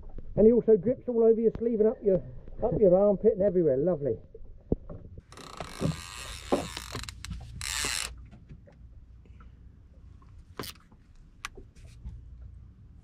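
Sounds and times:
fishing reel ratchet: 5.3 - 8.2.

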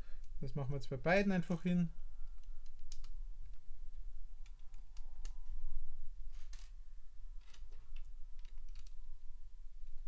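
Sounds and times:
plastic pieces clicking: 7.4 - 9.0.

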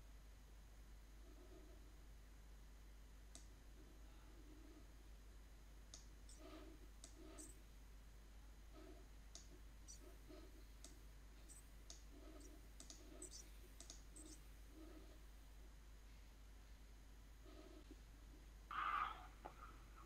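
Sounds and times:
computer mouse and keyboard clicks: 5.9 - 7.6, 10.8 - 14.4.

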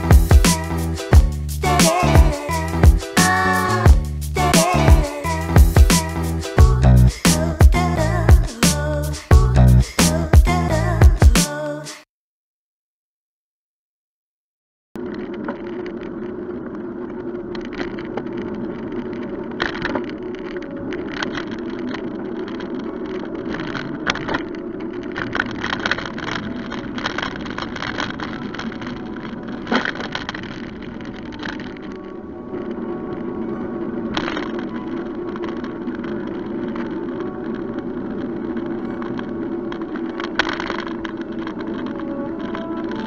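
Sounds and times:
bicycle rolling on road: 15.0 - 43.0.

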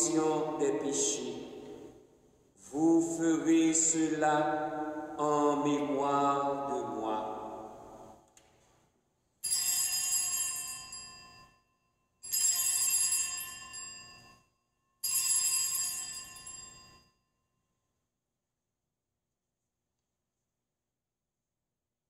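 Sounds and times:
altar bells ringing: 9.4 - 17.2.

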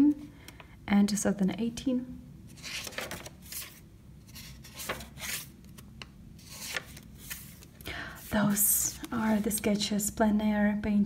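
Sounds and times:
paper pages rustling: 2.5 - 7.8.

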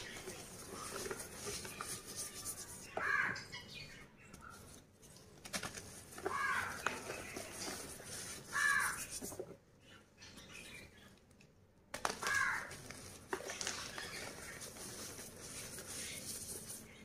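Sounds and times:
chalk piece cracking: 0.0 - 3.2, 5.6 - 9.4.

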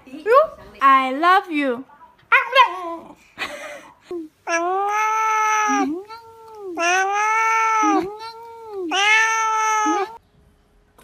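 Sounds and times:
cat meowing: 4.5 - 10.2.

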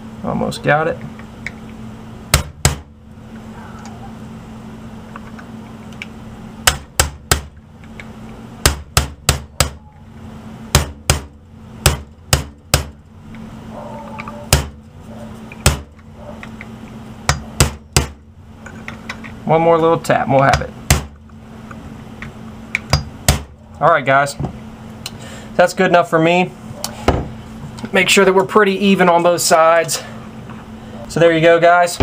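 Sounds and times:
faint steady hum: 0.0 - 32.0
hammer tapping a punch: 2.3 - 2.9, 6.6 - 7.6, 8.6 - 9.8, 10.7 - 13.0, 14.5 - 14.8, 15.6 - 16.0, 17.3 - 18.2, 20.5 - 21.2, 22.8 - 23.5.

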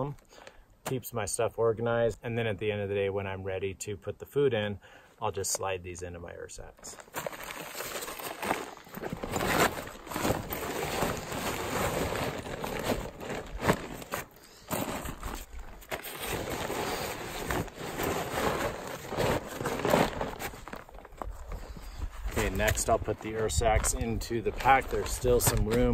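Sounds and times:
fabric and plastic rustling: 6.8 - 25.9.

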